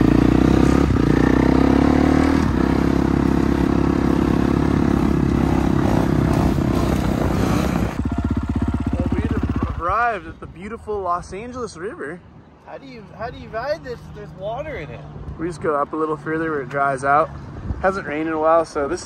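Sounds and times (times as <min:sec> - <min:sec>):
dirt bike engine running: 0:00.0 - 0:10.3.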